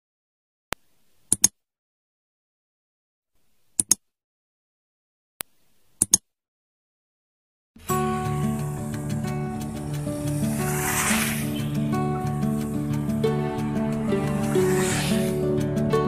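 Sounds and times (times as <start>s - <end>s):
computer mouse clicks: 1.3s - 1.6s, 3.8s - 4.0s, 6.0s - 6.2s.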